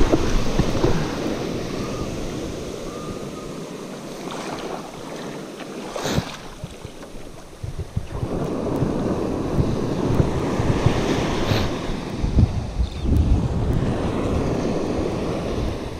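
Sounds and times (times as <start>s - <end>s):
wind on microphone: 0.0s - 5.2s, 5.9s - 15.9s
surf washing over sand: 0.0s - 15.9s.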